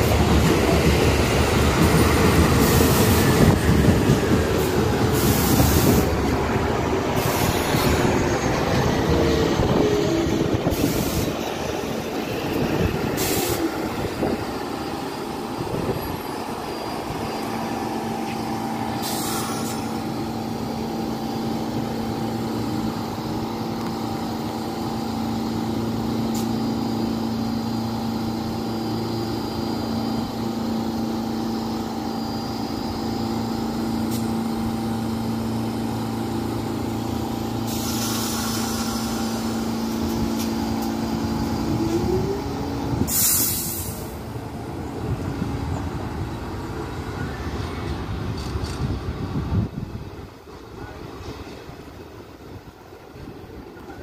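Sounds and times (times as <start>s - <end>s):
train equipment hum: 0.0s - 54.0s
brake air hisses: 4.6s - 6.2s, 10.6s - 11.4s, 13.2s - 14.4s, 18.9s - 20.0s, 37.6s - 40.6s, 43.0s - 44.2s.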